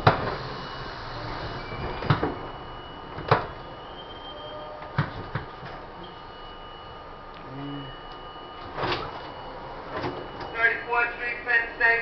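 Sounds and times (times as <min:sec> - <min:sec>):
subway car running rumble: 0:00.0 - 0:12.0
faint high steady tone: 0:06.0 - 0:12.0.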